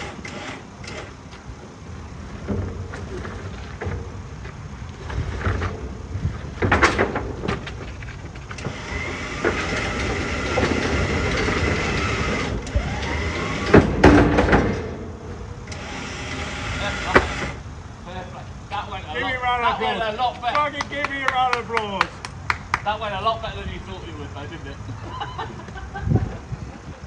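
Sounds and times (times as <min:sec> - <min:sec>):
electric winch whining: 0:00.0 - 0:01.2, 0:08.6 - 0:14.0, 0:15.6 - 0:17.6
clunks and creaks of pallets: 0:00.0 - 0:01.5, 0:02.1 - 0:17.6.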